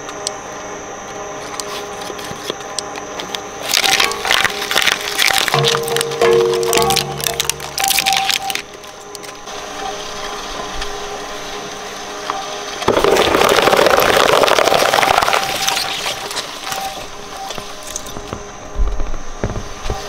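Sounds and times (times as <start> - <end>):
shredder running: 3.2 - 8.6, 9.5 - 18.4
cardboard crunching and ripping: 3.6 - 8.6, 12.9 - 16.9.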